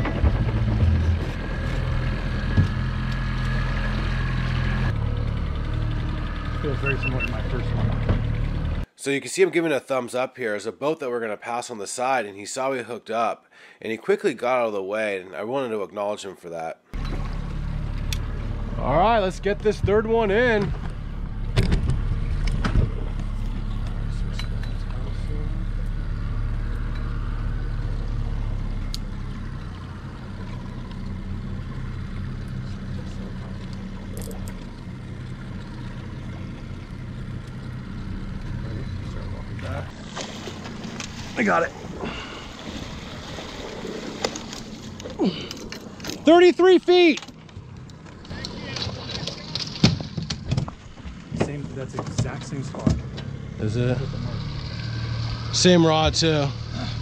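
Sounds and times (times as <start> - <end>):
outboard motor humming: 0.0 - 8.9, 17.0 - 57.0.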